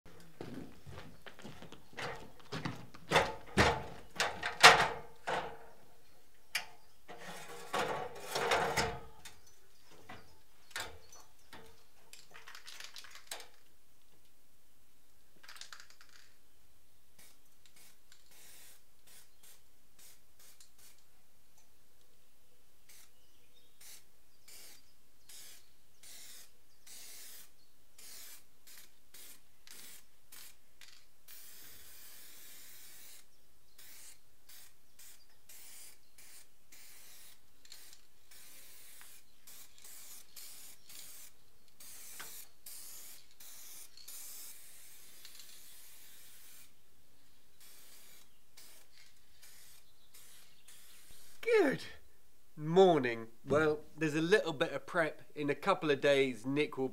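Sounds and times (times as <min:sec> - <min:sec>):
rough scraping strokes: 0:07.1 - 0:08.6.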